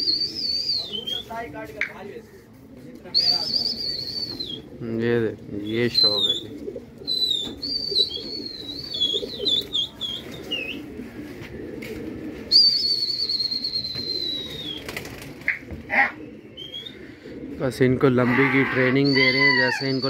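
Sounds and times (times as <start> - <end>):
high clear whistles: 0.0 - 1.2, 3.2 - 4.6, 7.2 - 9.5, 12.5 - 14.9.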